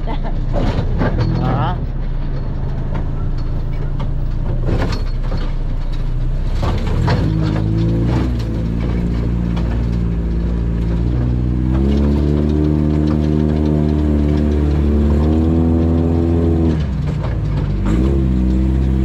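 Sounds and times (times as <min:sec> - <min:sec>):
knocks and rattles: 0:00.0 - 0:19.0
vehicle engine running: 0:00.0 - 0:19.0.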